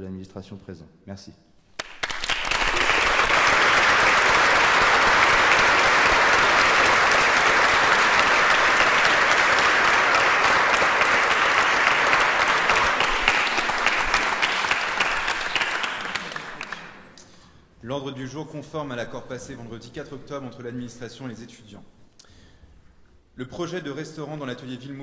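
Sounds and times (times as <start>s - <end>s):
audience applauding: 1.8s - 17.2s.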